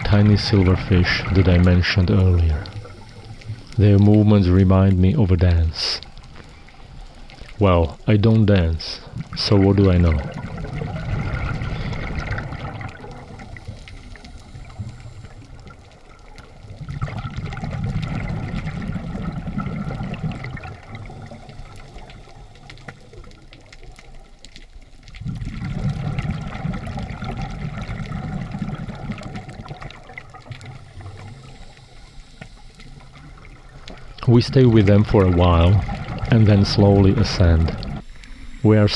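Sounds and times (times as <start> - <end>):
underwater regulator bubbling exhalations: 9.1 - 15.7, 25.2 - 31.6.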